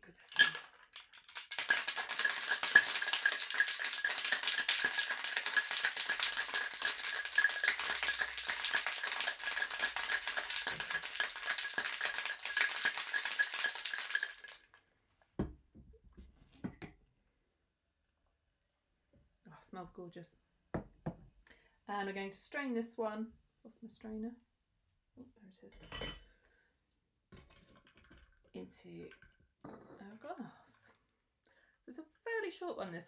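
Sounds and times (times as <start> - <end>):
ice rattling in cocktail shaker: 0.0 - 14.8.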